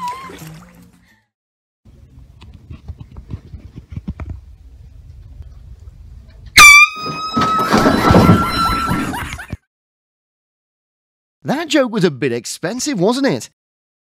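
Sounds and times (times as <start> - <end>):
air horn blare: 6.6 - 7.8.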